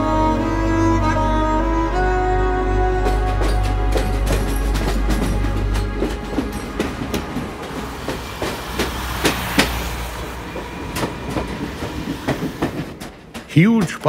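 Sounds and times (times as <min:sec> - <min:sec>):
train rumble: 0:00.0 - 0:14.0
train wheels clattering over rails: 0:03.0 - 0:14.0.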